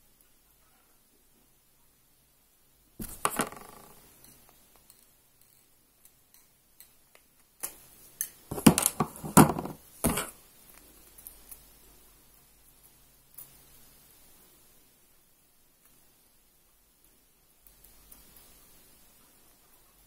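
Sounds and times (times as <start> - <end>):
handling noise: 3.0 - 4.1, 8.5 - 10.4.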